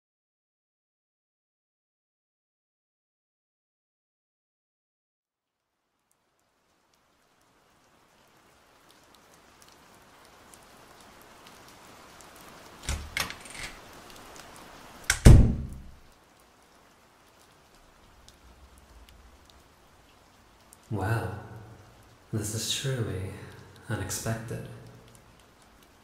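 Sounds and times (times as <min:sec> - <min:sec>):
rain falling: 0:05.4 - 0:26.0
knocks on a wooden door: 0:15.1 - 0:15.8
heavy booming thud: 0:15.1 - 0:15.9.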